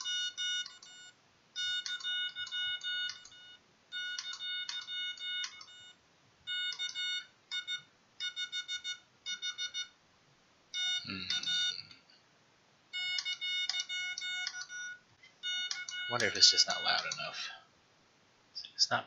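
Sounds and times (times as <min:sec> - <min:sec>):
morse code beeps: 0:00.0 - 0:10.0, 0:10.8 - 0:11.9, 0:12.9 - 0:17.4.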